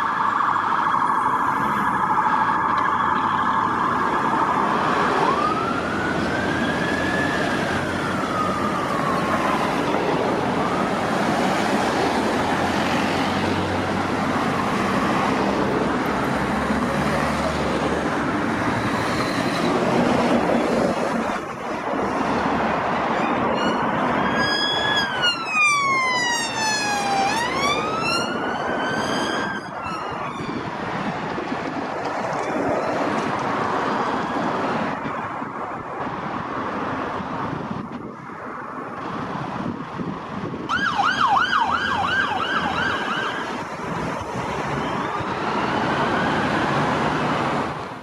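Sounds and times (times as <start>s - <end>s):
police siren wailing: 0.0s - 22.2s, 23.1s - 35.9s, 40.6s - 47.6s
road traffic noise: 0.0s - 48.0s.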